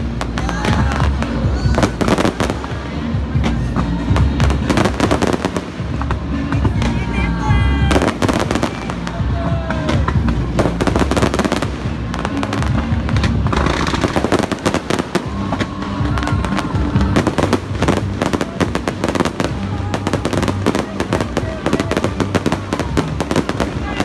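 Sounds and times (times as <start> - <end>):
fireworks bangs and crackles: 0.0 - 24.0.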